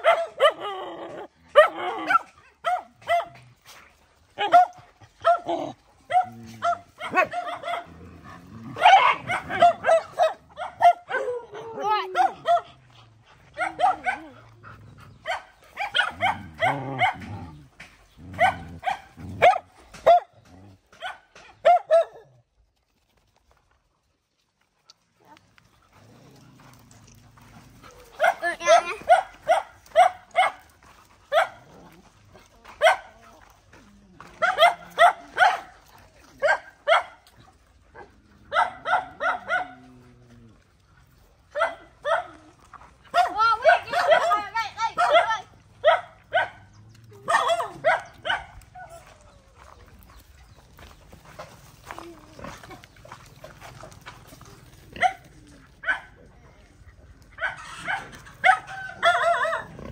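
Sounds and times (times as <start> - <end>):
dogs barking and yelping: 0.0 - 22.6, 24.8 - 59.9
dog growling: 5.4 - 10.2, 16.0 - 19.6, 25.9 - 29.1, 59.0 - 59.9.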